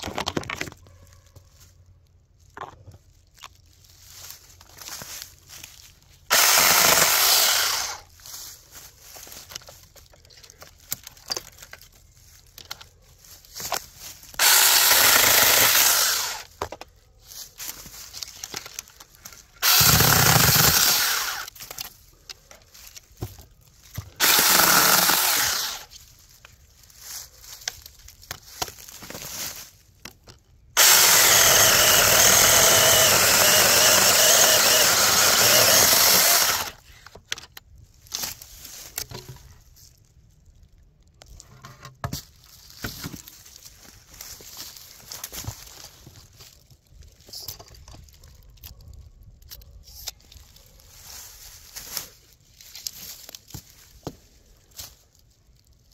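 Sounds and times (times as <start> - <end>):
cordless chainsaw cutting: 6.3 - 8.1, 14.4 - 16.5, 19.6 - 21.6, 24.2 - 25.9, 30.8 - 36.8.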